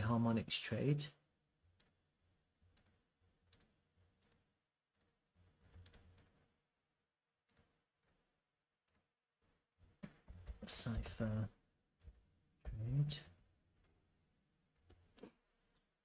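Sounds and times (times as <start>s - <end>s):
computer mouse clicks: 1.8s - 2.0s, 2.7s - 6.4s, 7.5s - 8.2s, 8.8s - 9.1s, 14.7s - 15.9s.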